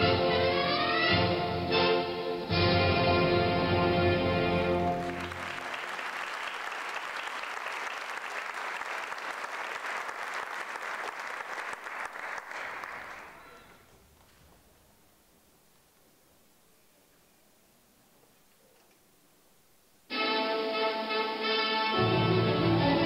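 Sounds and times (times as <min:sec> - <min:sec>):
audience applause: 0:04.6 - 0:14.1
music held chord: 0:20.1 - 0:23.0.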